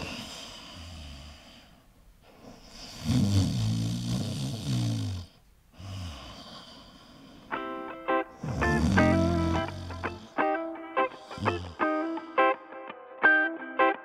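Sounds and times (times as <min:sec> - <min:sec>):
person snoring: 0:00.0 - 0:07.5, 0:08.3 - 0:10.5, 0:11.1 - 0:12.4.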